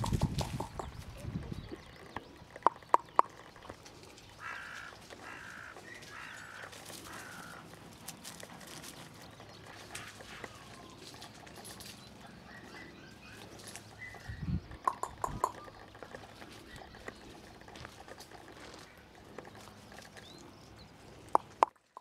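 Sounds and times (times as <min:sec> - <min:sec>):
puppy rustling on grass and gravel: 0:03.5 - 0:14.5, 0:15.6 - 0:21.9
crow cawing: 0:04.4 - 0:07.8.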